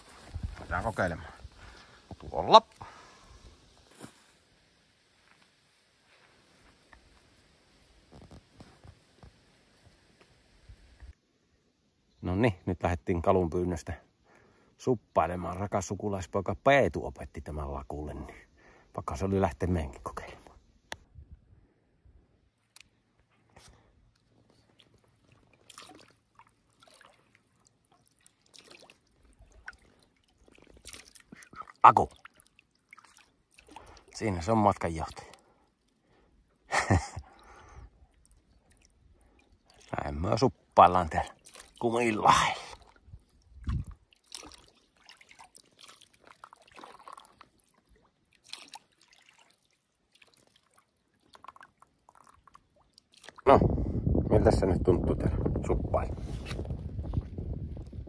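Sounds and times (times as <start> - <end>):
paddle swishing and dripping: 0.0 - 11.2, 22.6 - 53.5.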